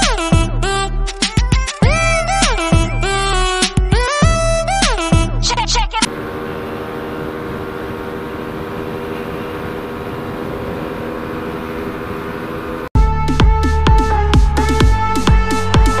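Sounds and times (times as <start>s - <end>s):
motorcycle engine cruising: 6.1s - 12.9s
wind and road noise: 6.1s - 12.9s.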